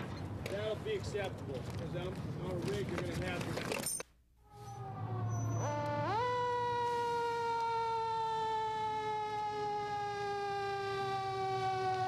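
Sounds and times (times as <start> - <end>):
fire engine siren: 4.4 - 12.0.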